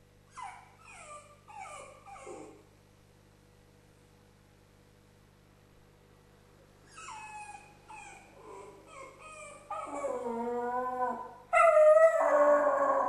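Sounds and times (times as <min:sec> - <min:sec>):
dog whimpering: 0:00.3 - 0:02.6, 0:06.9 - 0:13.0
dog howling: 0:07.2 - 0:13.0.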